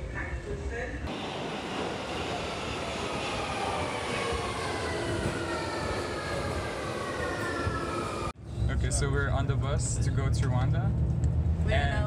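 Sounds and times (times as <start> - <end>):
train whine falling in pitch: 1.1 - 8.3.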